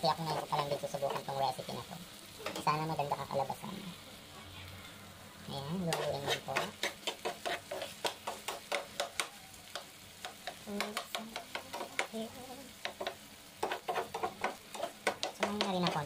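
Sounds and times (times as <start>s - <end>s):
potatoes sizzling in oil: 0.0s - 16.0s
metal spoon scraping a pan: 0.2s - 1.4s, 5.8s - 9.3s, 10.2s - 12.1s, 12.8s - 16.0s.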